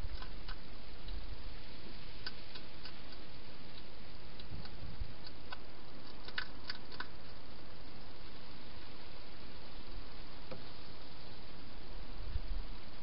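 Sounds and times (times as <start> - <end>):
hedgehog eating crunches: 0.0 - 1.2, 2.2 - 8.1
steady hiss: 0.0 - 13.0.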